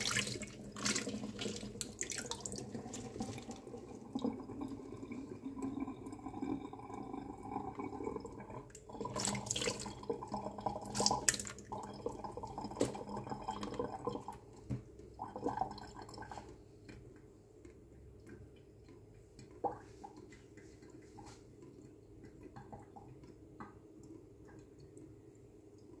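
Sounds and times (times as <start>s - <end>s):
water splashing in metal bowl: 0.0s - 14.5s
faint drips: 0.0s - 26.0s.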